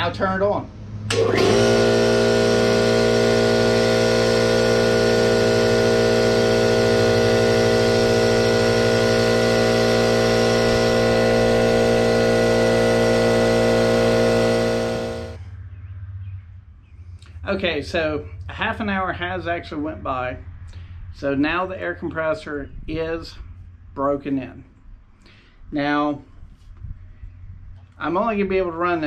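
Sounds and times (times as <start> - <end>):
air compressor running: 1.0 - 15.5.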